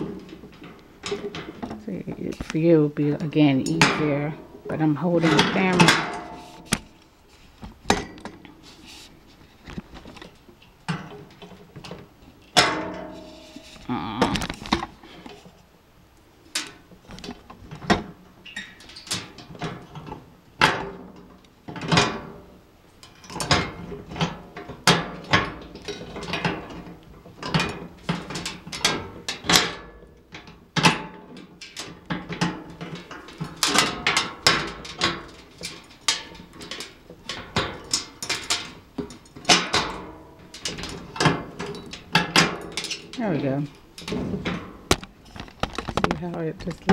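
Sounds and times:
metal parts clanking: 3.4 - 7.1, 23.0 - 46.9.

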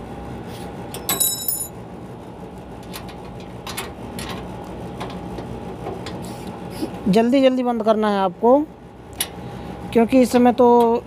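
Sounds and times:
air conditioner unit humming: 0.0 - 11.0
sharp metallic clink: 1.1 - 1.7.

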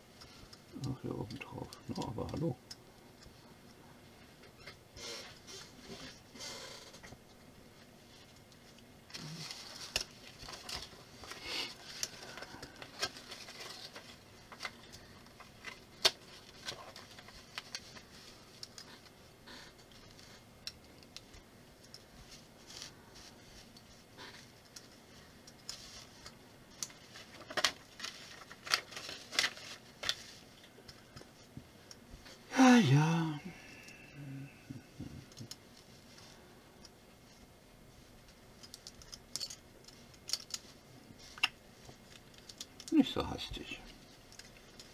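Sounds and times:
paper leaflet rustling: 25.7 - 30.6.

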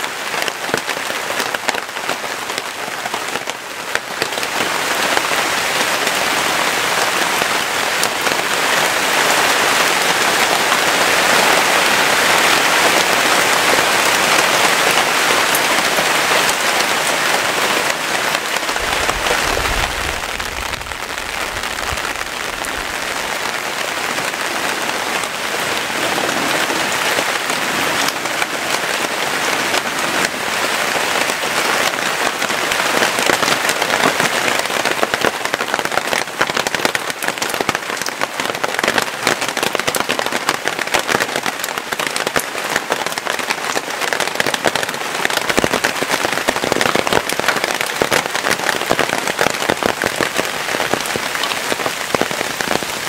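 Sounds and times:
heavy rain pouring: 0.0 - 53.0
low rumble: 18.7 - 23.1.

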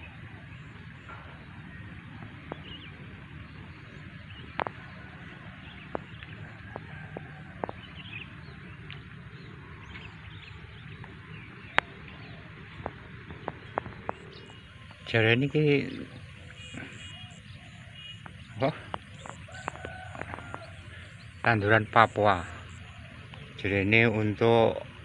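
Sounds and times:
low rumble: 0.0 - 15.2
bird chirps: 0.0 - 25.0.

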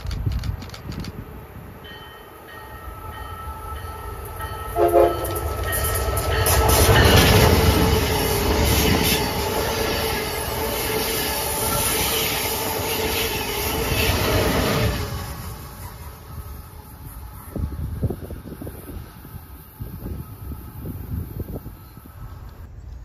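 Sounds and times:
high-speed train passing: 0.0 - 23.0
train horn toot: 2.9 - 6.8.

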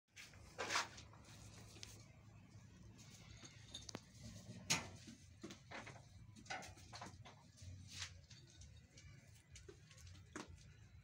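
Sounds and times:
hooves shifting on concrete: 5.0 - 11.0.

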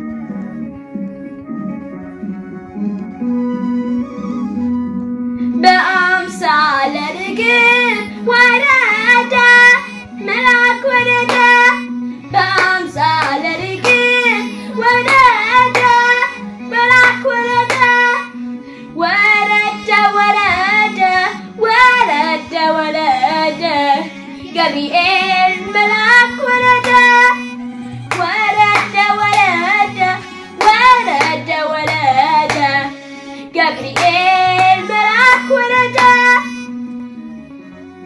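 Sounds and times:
low instrumental backing tone: 0.0 - 38.0.

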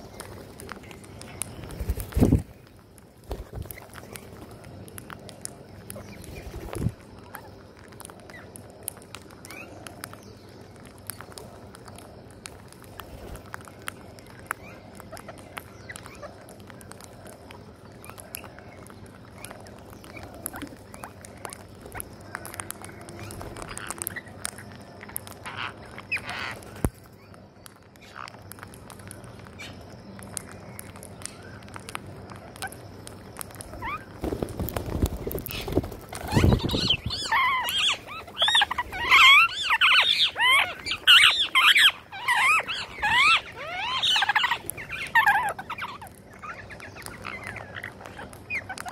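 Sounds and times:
beaks pecking grains: 0.0 - 48.9
parakeet calls: 19.3 - 27.3, 33.6 - 48.9.

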